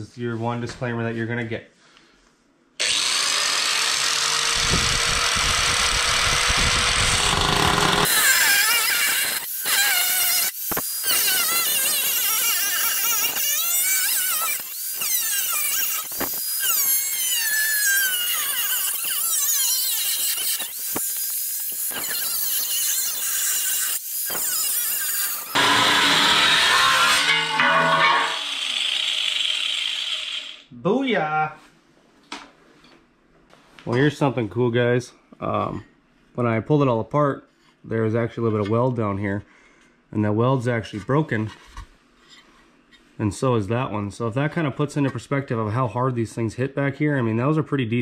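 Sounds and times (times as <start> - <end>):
angle grinder cutting metal: 2.8 - 30.7.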